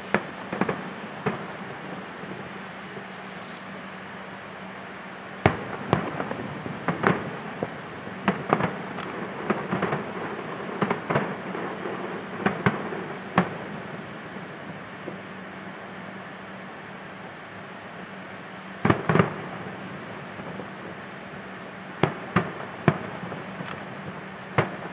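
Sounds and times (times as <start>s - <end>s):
fireworks bursting: 0.0s - 4.2s, 5.4s - 16.6s, 17.9s - 24.9s.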